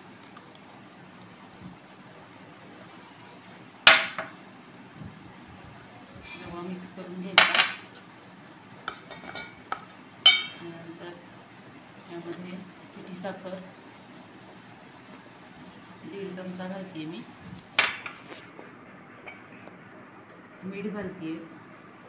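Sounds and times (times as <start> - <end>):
metal spoon clinking steel bowl: 8.9 - 10.6.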